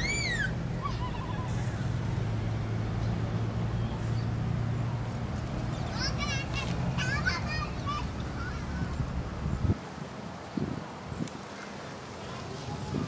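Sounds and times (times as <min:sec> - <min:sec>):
low engine hum: 0:00.0 - 0:11.2
outdoor background hiss: 0:00.0 - 0:13.0.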